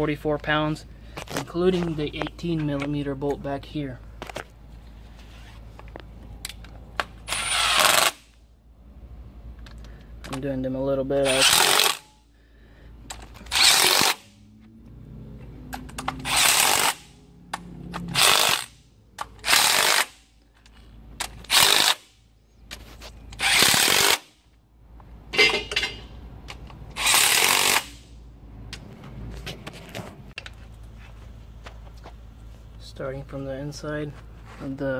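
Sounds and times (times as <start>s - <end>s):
impact wrench bursts: 7.0s - 8.4s, 11.2s - 12.3s, 13.0s - 14.5s, 15.8s - 22.2s, 23.3s - 24.4s, 26.9s - 28.2s.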